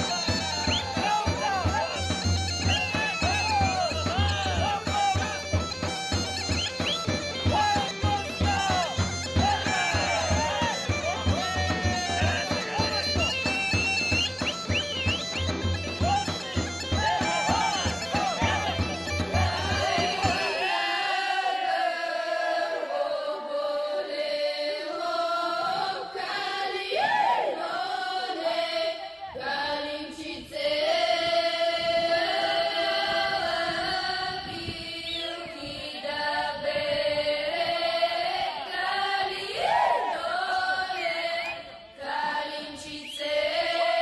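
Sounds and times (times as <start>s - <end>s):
women's group singing in unison: 16.9s - 44.0s.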